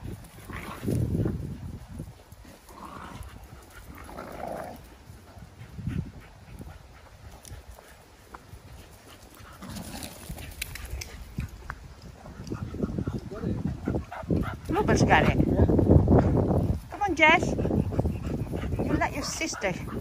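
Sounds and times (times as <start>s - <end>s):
muffled dog vocal sounds: 17.1s - 20.0s.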